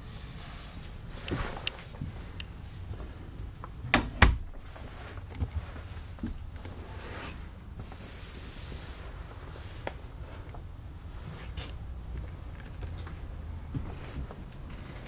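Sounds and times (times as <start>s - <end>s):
door being shut: 3.9s - 4.5s.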